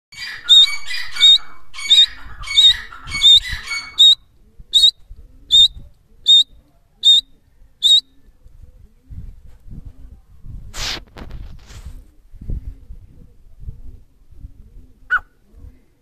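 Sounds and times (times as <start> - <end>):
bird high whistled calls: 0.2 - 4.2, 4.8 - 8.2.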